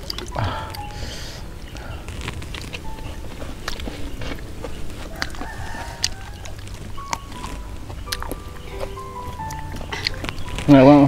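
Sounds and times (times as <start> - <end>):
chickens clucking: 0.0 - 11.0
rooster crowing: 4.8 - 7.6.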